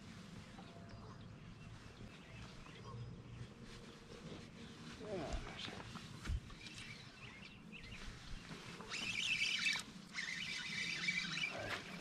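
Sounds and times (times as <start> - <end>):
fishing reel whirring: 8.8 - 12.0.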